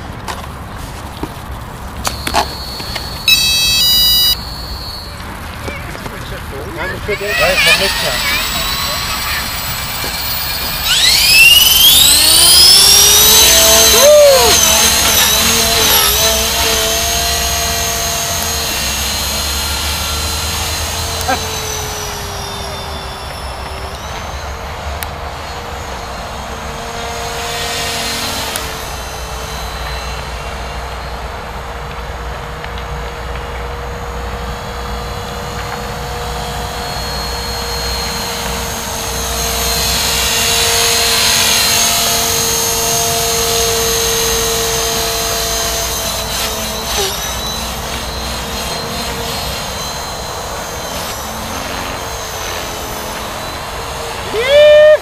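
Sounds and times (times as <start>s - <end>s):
electric motor whine: 1.2s - 55.0s
rotor blades swishing: 6.7s - 24.8s, 36.4s - 54.4s.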